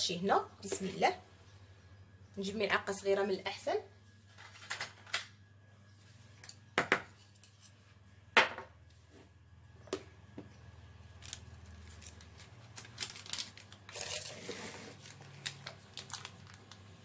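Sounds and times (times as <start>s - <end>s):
spoon scraping plastic bowl: 13.9s - 15.0s.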